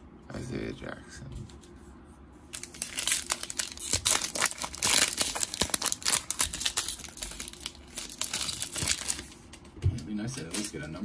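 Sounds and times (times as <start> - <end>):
foil wrapper tearing and crinkling: 2.5 - 9.4.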